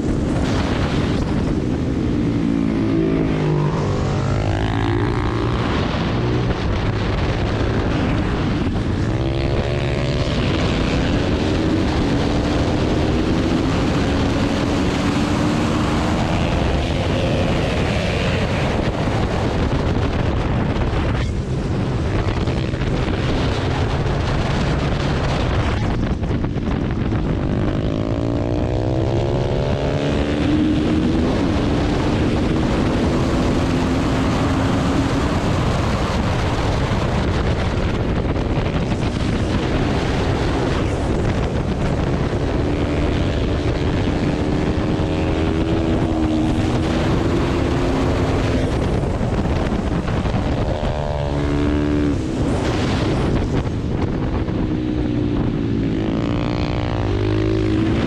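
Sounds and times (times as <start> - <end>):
motorcycle engine shifting gears: 0.0 - 58.0
wind noise on microphone: 0.0 - 58.0.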